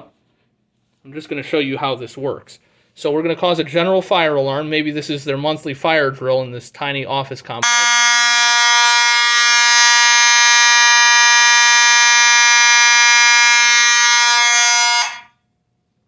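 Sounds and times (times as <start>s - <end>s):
fire alarm horn buzzing: 7.6s - 15.3s.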